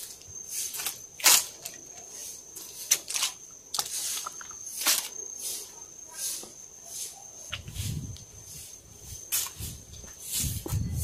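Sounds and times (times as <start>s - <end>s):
crackling rustling clicks: 0.0s - 5.2s
high insect drone: 0.0s - 11.0s.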